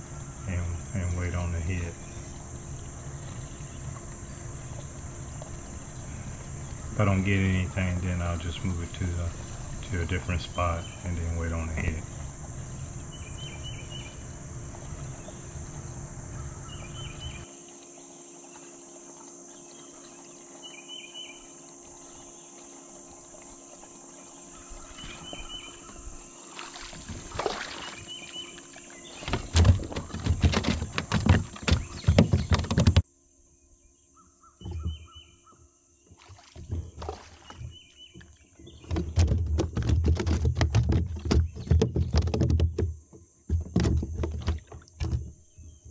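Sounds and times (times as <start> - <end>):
high insect drone: 0.0 - 45.9
gear knocking on plastic kayak: 29.0 - 33.0, 36.6 - 45.8.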